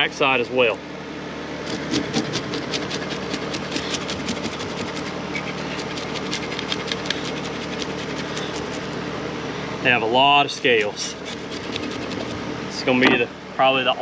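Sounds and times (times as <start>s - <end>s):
steady mechanical hum: 0.0s - 14.0s
knife scraping fish scales: 1.7s - 9.0s, 10.5s - 12.4s.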